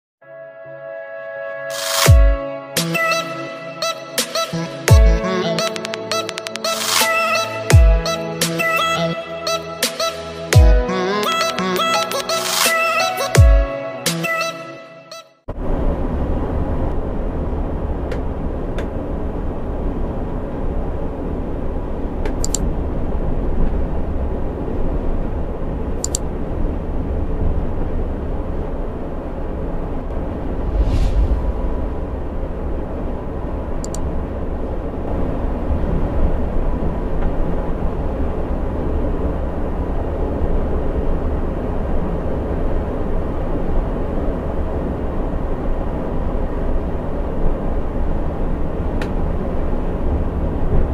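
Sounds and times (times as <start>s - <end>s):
short clicks: 22.4s - 22.6s, 26.0s - 26.2s.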